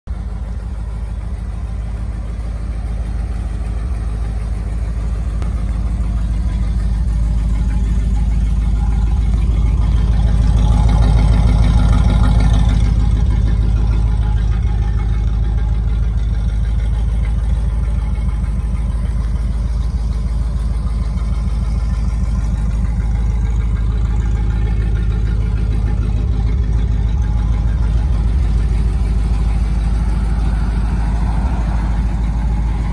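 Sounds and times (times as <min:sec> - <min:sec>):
van engine idling: 0:00.1 - 0:32.9.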